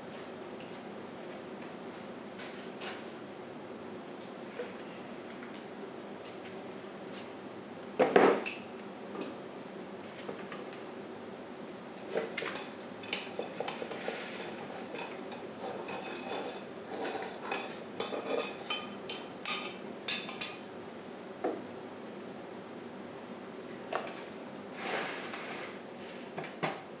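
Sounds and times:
metal clinking and scraping: 12.4s - 20.6s.

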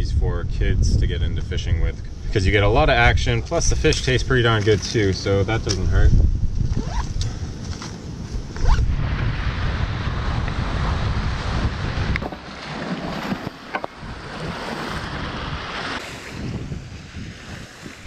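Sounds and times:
wind buffeting microphone: 0.0s - 18.0s
waves washing against rocks: 9.2s - 18.0s.

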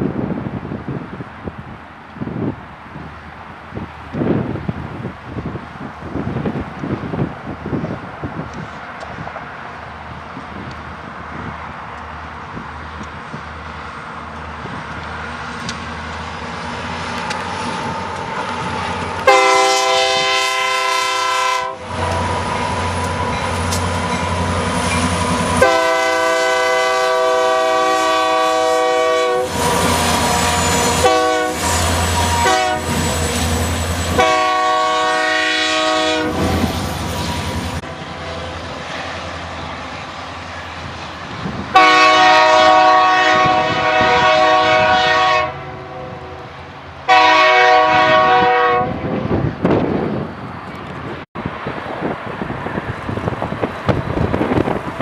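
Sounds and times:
train wheels on rails: 0.0s - 45.4s, 46.4s - 55.0s
diesel engines rumbling: 0.3s - 48.4s
locomotive air horn blasts: 19.2s - 22.2s, 25.5s - 33.1s, 34.1s - 36.6s, 41.7s - 46.5s, 47.1s - 49.1s.

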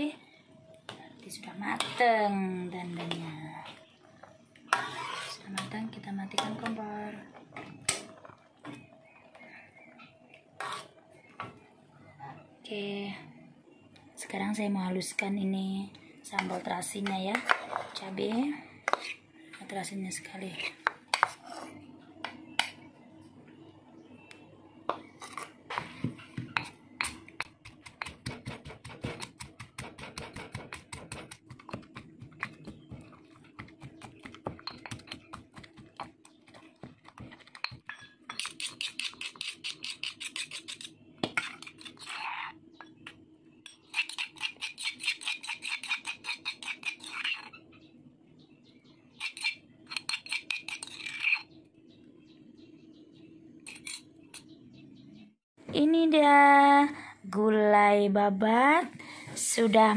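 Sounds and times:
stone pestle pounding and grinding: 26.4s - 42.2s, 43.7s - 47.5s.

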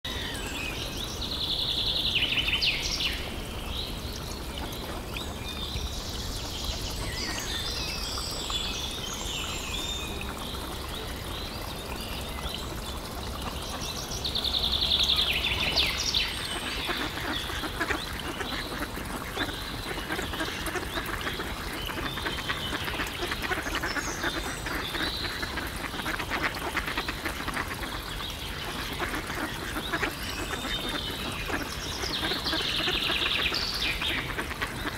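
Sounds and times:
young ducks quacking: 15.4s - 34.9s
ducks pecking at food: 16.9s - 23.8s, 24.4s - 27.9s, 28.8s - 31.7s.

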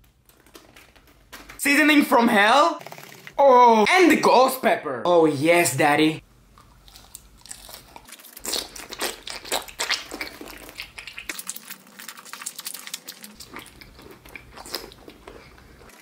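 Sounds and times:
wet mouth sucking and chewing: 6.6s - 16.0s.

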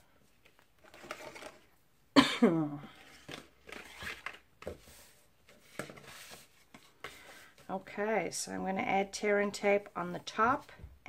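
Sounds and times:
paper rustles and scrapes: 2.9s - 7.7s.

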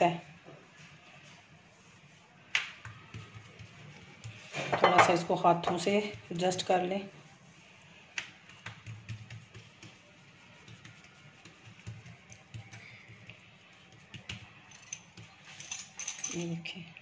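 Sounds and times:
hands patting bread dough: 2.4s - 15.4s.

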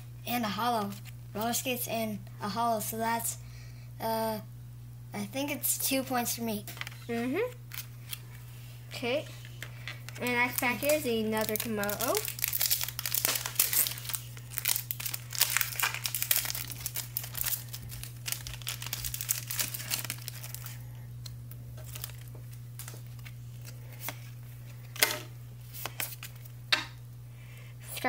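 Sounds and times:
foil wrapper crinkling: 6.7s - 8.4s, 9.0s - 26.5s.

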